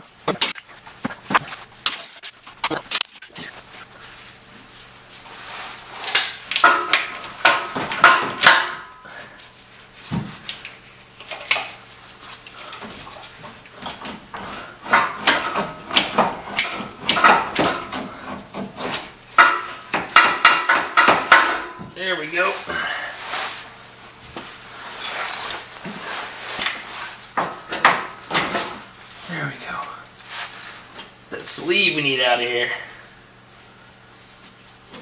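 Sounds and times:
low steady hum: 0:00.0 - 0:07.4.

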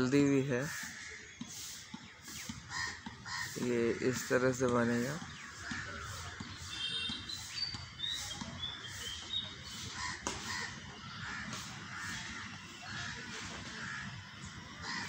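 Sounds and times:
birds calling roughly: 0:00.0 - 0:15.0.

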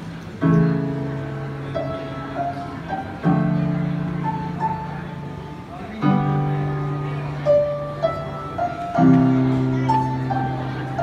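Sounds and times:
upright piano: 0:00.0 - 0:11.0.

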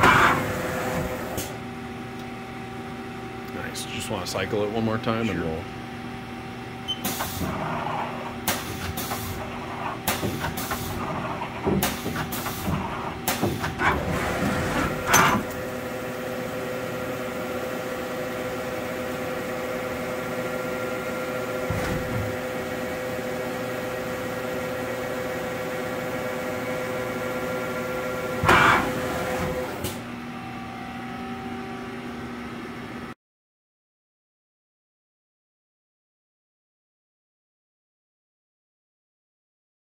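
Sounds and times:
machine hum and whine: 0:00.0 - 0:33.2
lathe turret clicks and clunks: 0:08.4 - 0:15.6, 0:28.4 - 0:30.0.

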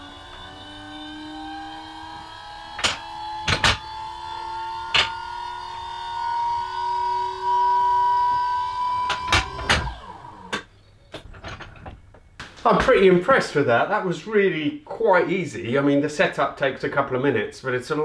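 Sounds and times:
hydraulic pump whining: 0:00.0 - 0:11.7.

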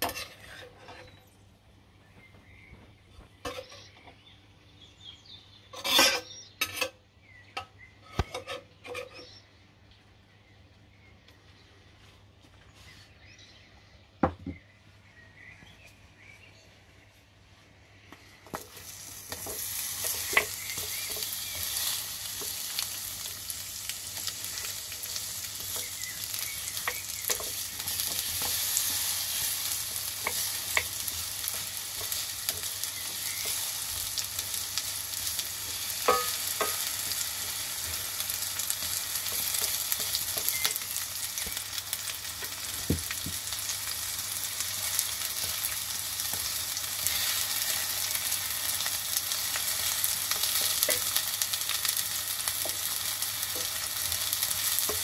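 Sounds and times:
apples sizzling in a frying pan: 0:00.0 - 0:01.0, 0:18.3 - 0:55.0
spatula knocking and scraping pan: 0:00.0 - 0:01.2, 0:18.5 - 0:22.6, 0:24.5 - 0:33.9, 0:35.3 - 0:40.8.

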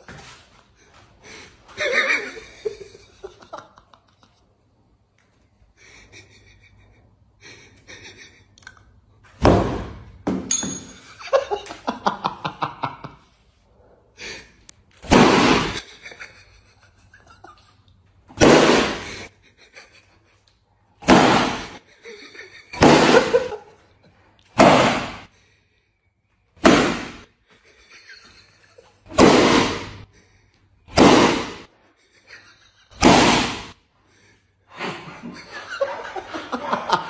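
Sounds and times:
people laughing: 0:01.2 - 0:04.4, 0:05.8 - 0:08.6, 0:11.2 - 0:13.4, 0:15.8 - 0:17.9, 0:19.0 - 0:20.5, 0:21.8 - 0:23.8, 0:27.6 - 0:29.1, 0:32.0 - 0:33.0, 0:34.7 - 0:37.0.

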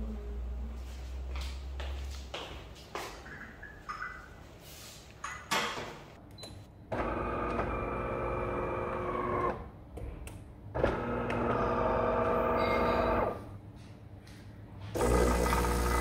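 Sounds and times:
coffee machine motor whining: 0:07.0 - 0:09.7, 0:10.8 - 0:13.4, 0:15.0 - 0:16.0.

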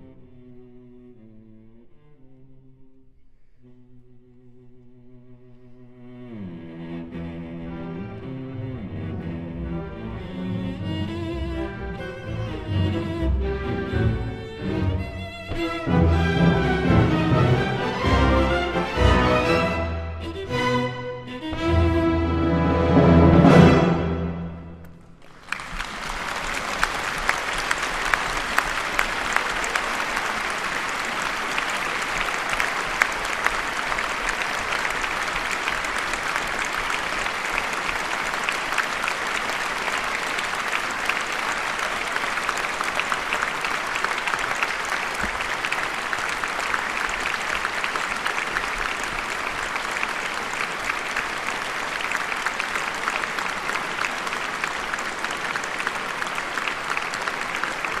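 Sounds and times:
audience applause: 0:09.1 - 0:58.0
orchestral chord echo: 0:15.7 - 0:24.8.

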